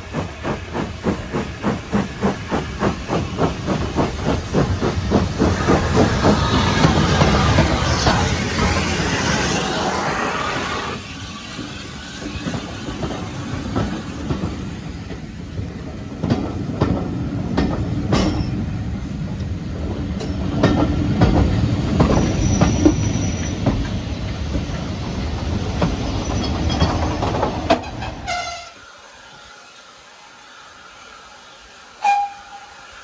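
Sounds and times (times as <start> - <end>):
train wheels rumbling on track: 0.0 - 33.0
high wheel squeal: 22.2 - 23.6, 26.1 - 27.0, 32.0 - 32.8.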